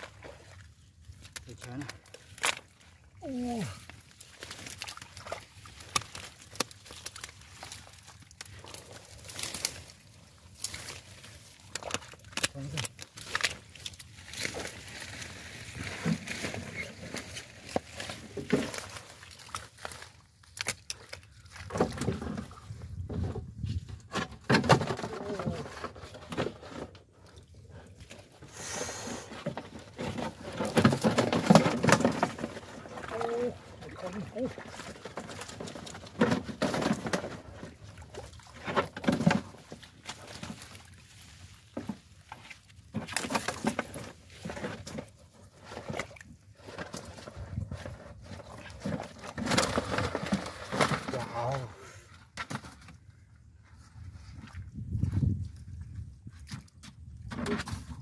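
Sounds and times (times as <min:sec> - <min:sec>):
hands splashing in mud and water: 0:00.0 - 0:22.8
fish flapping and splashing in mud: 0:00.0 - 0:23.6, 0:24.4 - 0:53.3.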